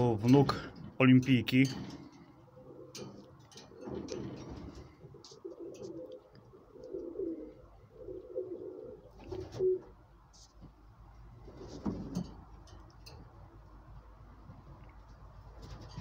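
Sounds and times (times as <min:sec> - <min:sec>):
pigeon cooing: 0:01.9 - 0:10.0.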